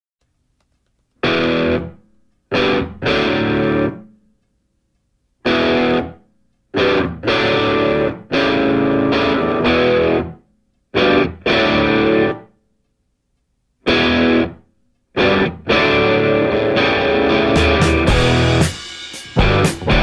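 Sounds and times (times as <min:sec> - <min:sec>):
distorted electric guitar chords: 0:01.2 - 0:04.2, 0:05.4 - 0:10.4, 0:11.0 - 0:12.5, 0:13.8 - 0:14.6, 0:15.2 - 0:20.0.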